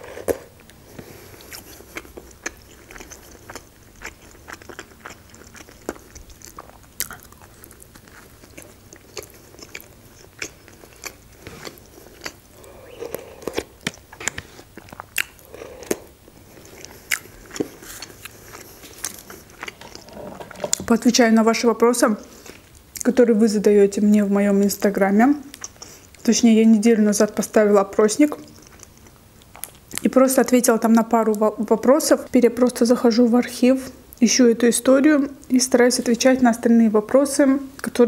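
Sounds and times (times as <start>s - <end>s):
person chewing food: 0.0s - 20.9s, 25.5s - 26.2s, 28.4s - 30.0s
crunchy bites: 1.5s - 20.5s.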